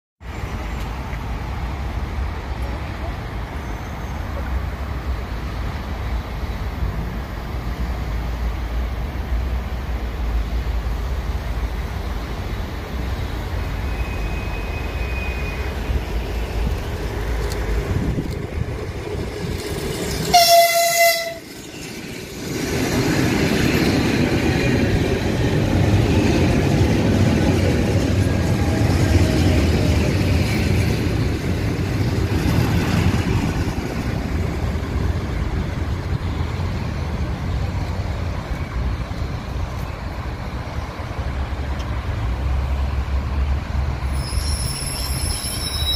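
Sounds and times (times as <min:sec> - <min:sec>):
train rumble and wheel rattle: 0:00.2 - 0:45.9
train horn blast: 0:20.3 - 0:21.5.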